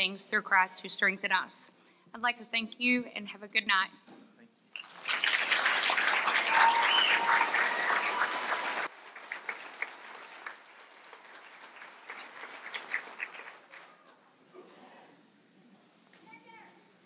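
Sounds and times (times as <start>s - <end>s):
audience applauding: 4.8s - 14.2s.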